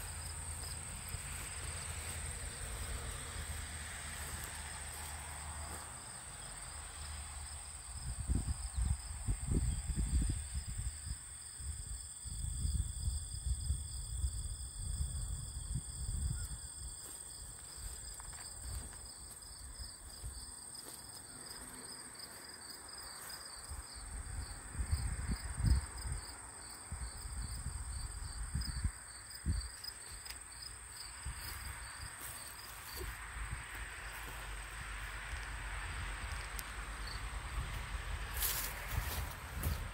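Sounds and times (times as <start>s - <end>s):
insects chirping: 0.0s - 39.9s
wind buffeting microphone: 8.0s - 16.7s, 36.0s - 39.9s.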